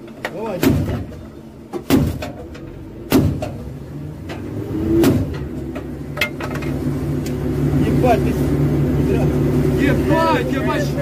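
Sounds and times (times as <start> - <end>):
vehicle engine humming: 0.0 - 11.0
loud bangs: 1.8 - 3.6.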